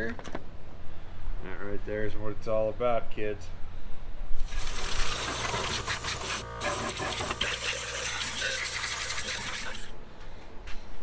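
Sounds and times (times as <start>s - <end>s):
compressed air hissing: 4.4s - 10.0s.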